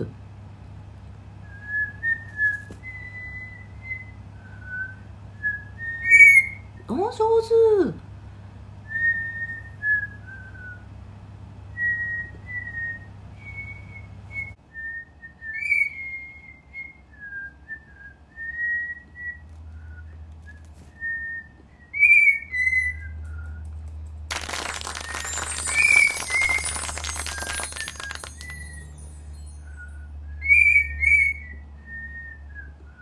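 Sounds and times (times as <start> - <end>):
burst of bright noise: 24.3 - 29.2
person whistling a tune: 24.7 - 33.0.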